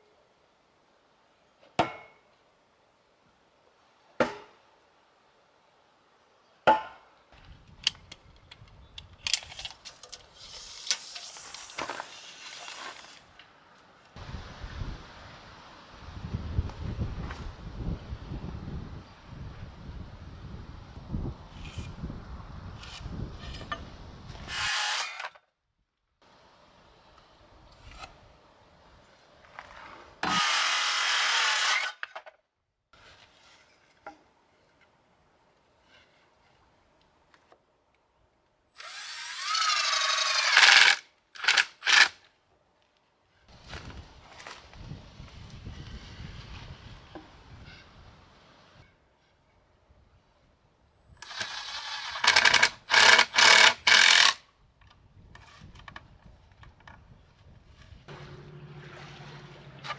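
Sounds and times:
rustling hiss: 9.8s - 17.5s.

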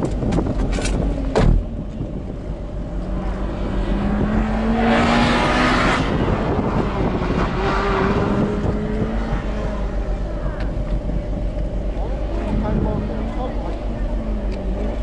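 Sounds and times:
car engine idling: 0.0s - 15.0s
loud rushing noise: 3.1s - 11.4s.

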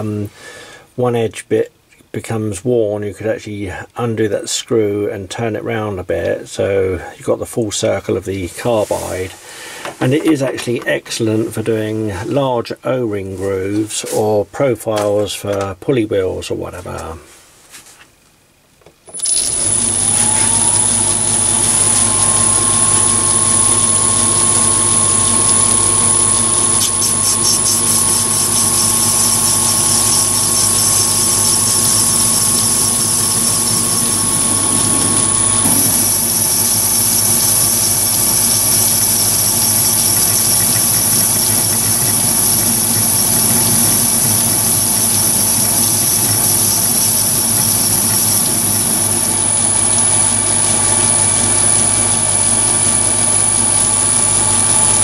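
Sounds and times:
tool cutting brass bar: 19.1s - 50.0s
lathe motor and gear whine: 19.1s - 55.0s.

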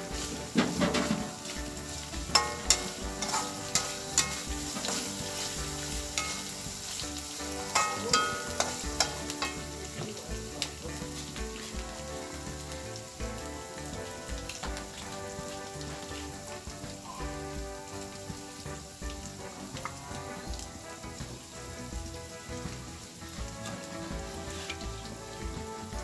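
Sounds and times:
paste sizzling in hot oil: 0.0s - 26.0s
metal spatula clacking against wok: 0.6s - 10.8s.

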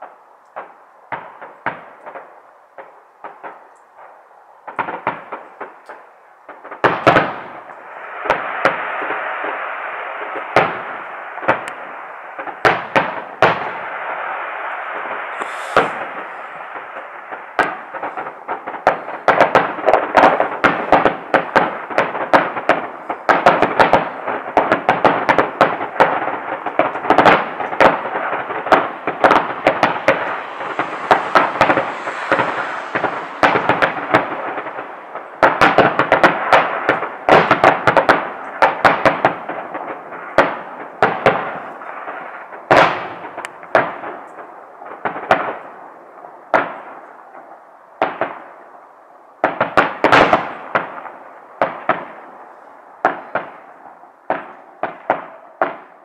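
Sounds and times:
firework shells bursting: 14.9s - 40.5s.

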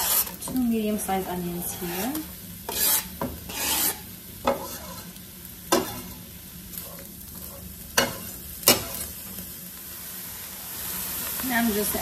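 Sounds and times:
onions sizzling in hot oil: 0.0s - 12.0s
knife clacking and scraping: 2.7s - 5.0s.

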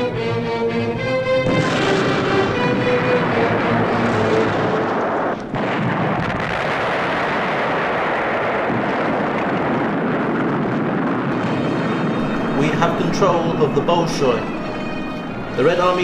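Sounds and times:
rumble of gunfire and explosions: 1.1s - 16.0s.

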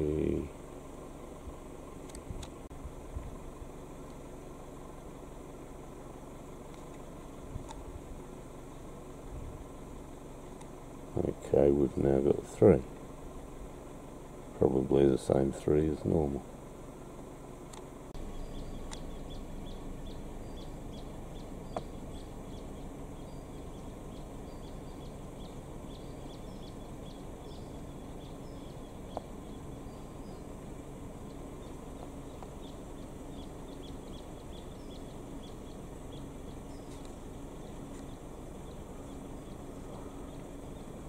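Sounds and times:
steady low rush: 0.0s - 41.0s
faint high chirps: 18.2s - 30.5s
sharp clicks: 18.8s - 19.1s.

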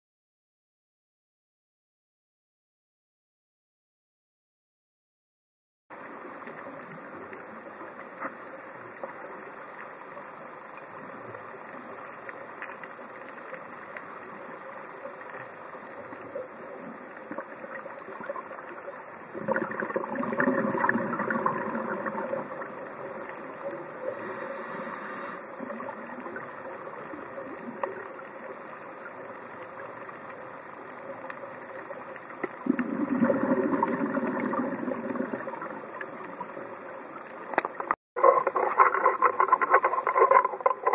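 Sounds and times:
steady underwater hiss: 5.9s - 40.9s
diver exhaling bubbles: 19.2s - 23.1s, 32.6s - 36.1s.

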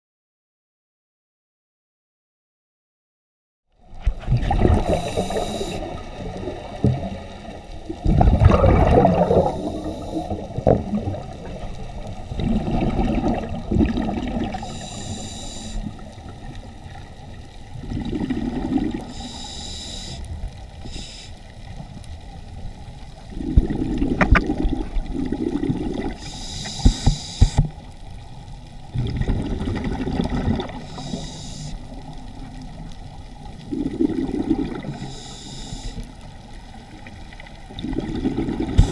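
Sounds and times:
exhaled bubbles rumbling: 3.8s - 15.2s, 15.8s - 19.3s, 21.6s - 31.2s, 31.8s - 35.1s, 36.3s - 38.9s
regulator inhale hiss: 4.8s - 6.2s, 9.3s - 10.6s, 14.5s - 16.2s, 19.0s - 21.9s, 26.1s - 27.9s, 30.7s - 32.1s, 34.8s - 36.3s.

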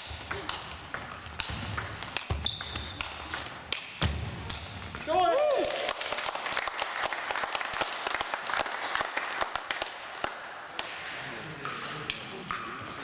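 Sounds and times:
spectators clapping: 5.3s - 10.9s.

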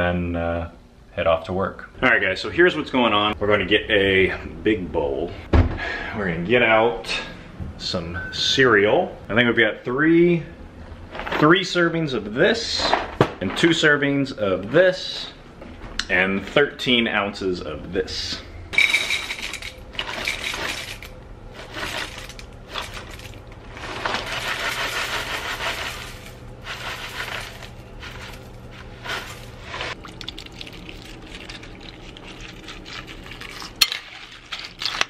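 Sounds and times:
dry cereal pouring into bowl: 21.6s - 33.5s
liquid pouring onto cereal: 30.0s - 34.9s.

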